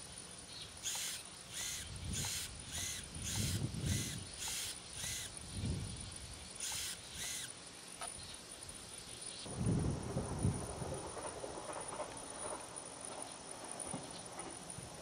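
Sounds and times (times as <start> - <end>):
servos whirring: 0.8 - 5.8, 6.4 - 7.6.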